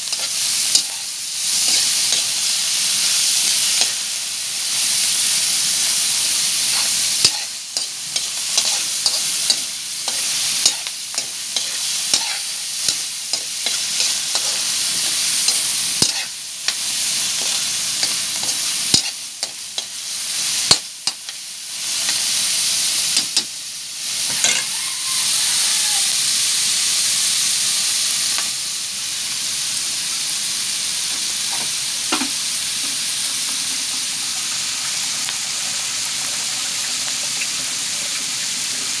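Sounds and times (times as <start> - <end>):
meat sizzling in a wok: 0.0 - 39.0
spatula scraping a pan: 0.1 - 2.3, 6.7 - 16.8, 24.4 - 24.7.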